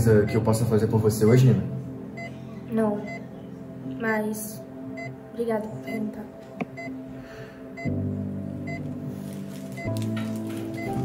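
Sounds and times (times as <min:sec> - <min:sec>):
sustained background music chords: 0:00.0 - 0:11.0.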